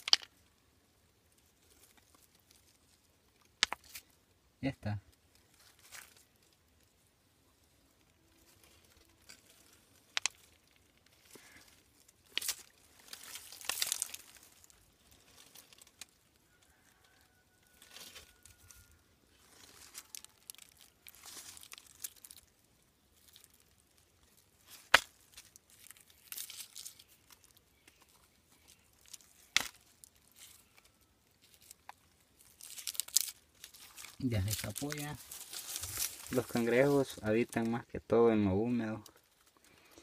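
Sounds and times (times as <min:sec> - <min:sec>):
fingers digging through soil and leaves: 0:08.1 - 0:37.8.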